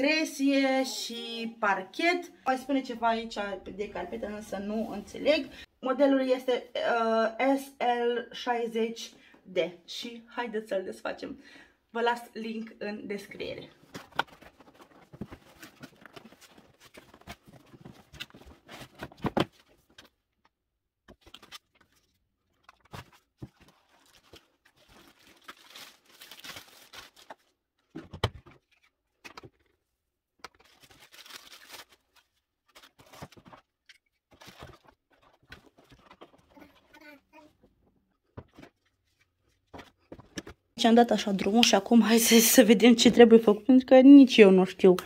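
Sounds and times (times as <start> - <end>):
cardboard and plastic rustling: 13.8 - 20.2, 21.1 - 40.8.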